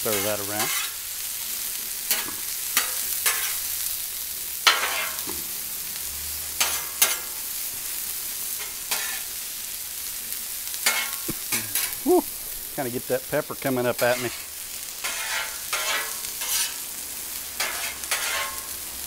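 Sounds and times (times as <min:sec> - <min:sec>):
metal spatula scraping griddle: 0:00.0 - 0:01.1, 0:02.0 - 0:03.8, 0:04.6 - 0:05.5, 0:06.2 - 0:07.6, 0:08.4 - 0:09.4, 0:10.8 - 0:12.0, 0:13.8 - 0:18.8
peppers sizzling in oil: 0:00.0 - 0:19.0.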